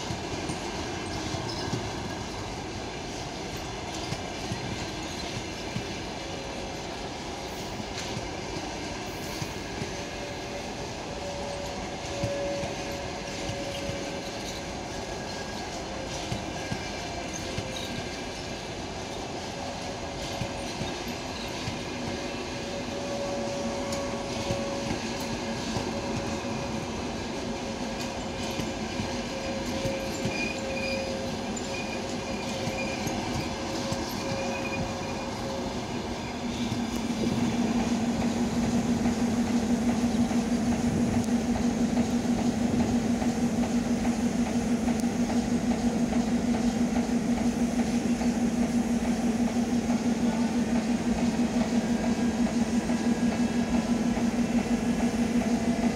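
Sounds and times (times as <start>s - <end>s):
train rumbling past: 0.0s - 55.9s
thin squealing tones: 29.1s - 38.0s.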